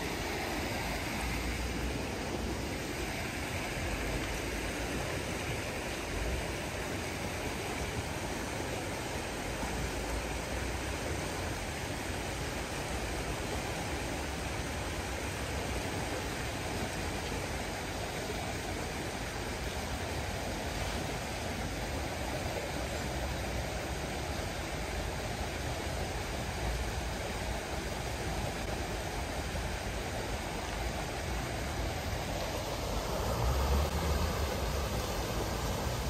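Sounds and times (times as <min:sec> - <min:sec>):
outdoor rushing noise: 0:31.0 - 0:36.0.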